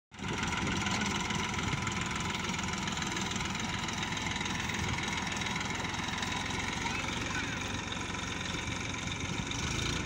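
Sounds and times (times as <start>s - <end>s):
tractor diesel engine under load: 0.1s - 10.0s.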